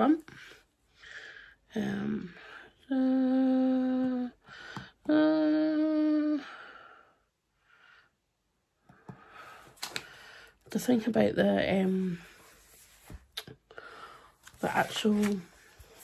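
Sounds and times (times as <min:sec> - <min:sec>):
woman humming: 0:01.8 - 0:04.4, 0:05.0 - 0:06.6
soft breaths: 0:06.2 - 0:10.7, 0:12.0 - 0:16.0.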